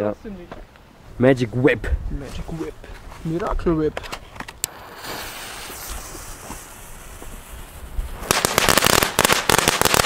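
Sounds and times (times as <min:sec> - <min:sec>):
ground firework hissing and crackling: 0:04.6 - 0:10.0.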